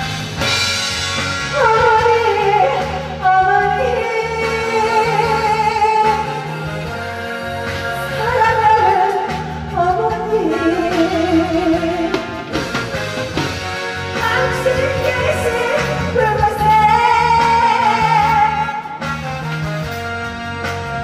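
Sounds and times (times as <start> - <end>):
backing track music: 0.0 - 21.0
woman singing with vibrato: 1.5 - 12.5, 14.2 - 19.1.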